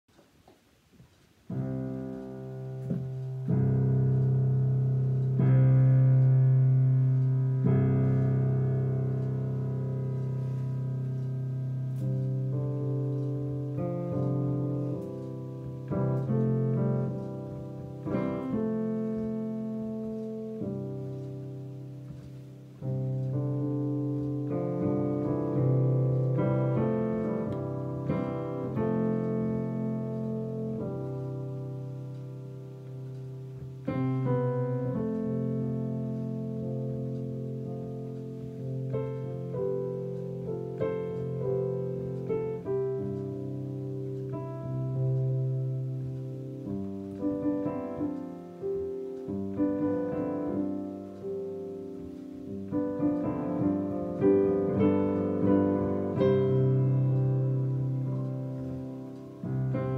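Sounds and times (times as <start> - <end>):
slow solo piano: 0.1 - 59.9.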